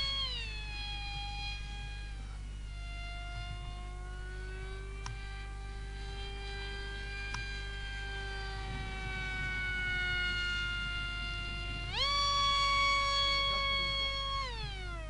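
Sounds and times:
rc jet motor whine: 0.0 - 15.0
steady low hum: 0.0 - 15.0
short clicks: 5.0 - 5.4, 7.1 - 7.8.

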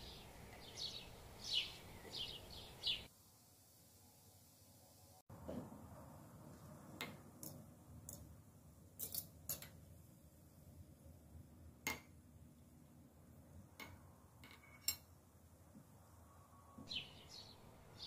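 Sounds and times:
metal fork clinking on glass jar: 9.0 - 9.7.

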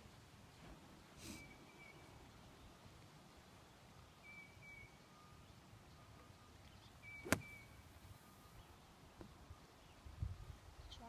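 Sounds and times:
golf club striking ball from sand: 7.2 - 7.7.

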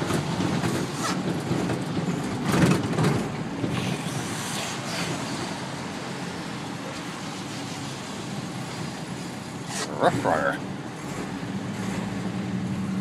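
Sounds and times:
tyres on wet road: 0.0 - 13.0.

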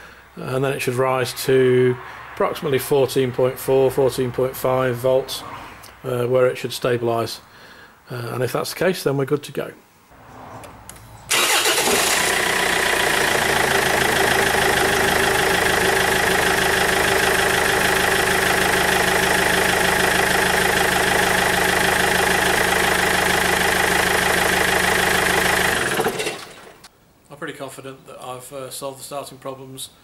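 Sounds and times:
car engine starting and idling: 10.6 - 26.9.

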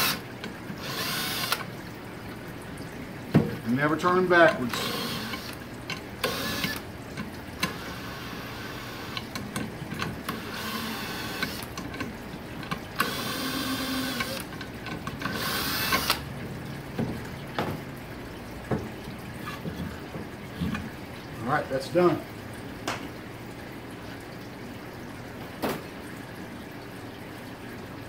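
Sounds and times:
cordless drill motor whine: 0.8 - 1.6, 4.7 - 5.6, 6.2 - 6.8, 10.4 - 11.6, 13.0 - 14.4, 15.3 - 16.2.

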